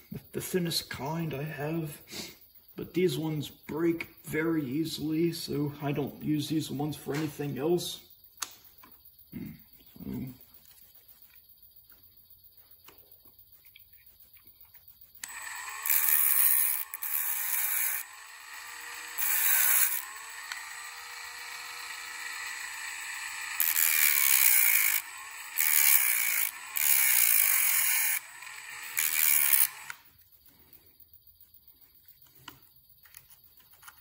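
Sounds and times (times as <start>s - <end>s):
rotary tool cutting copper: 15.2s - 30.1s.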